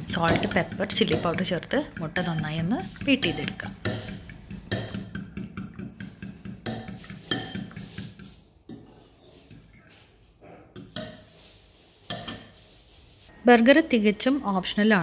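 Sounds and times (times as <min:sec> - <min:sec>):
spoon clinking against bowl: 0:00.2 - 0:07.8.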